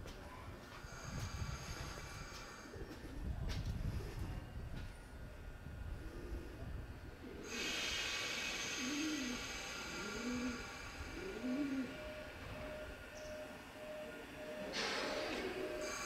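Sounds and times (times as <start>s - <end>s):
dove cooing: 7.2s - 16.0s.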